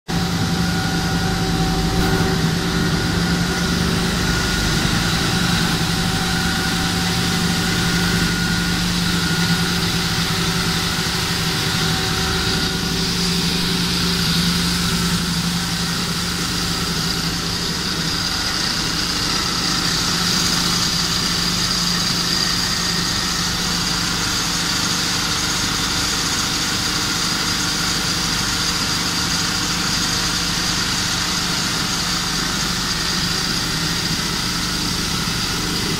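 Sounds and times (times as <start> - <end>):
motors humming: 0.1 - 25.6.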